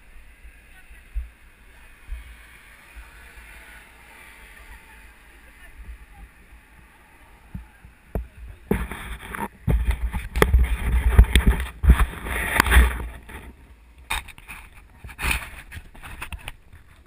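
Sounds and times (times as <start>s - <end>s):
wind rumbling on microphone: 0.0s - 17.0s
camera rattling knocks and clicks: 8.7s - 13.5s.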